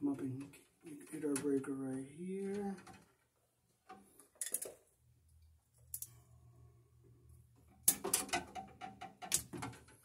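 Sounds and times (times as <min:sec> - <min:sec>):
wire strippers clicking and snipping: 0:05.8 - 0:06.2, 0:07.7 - 0:10.0.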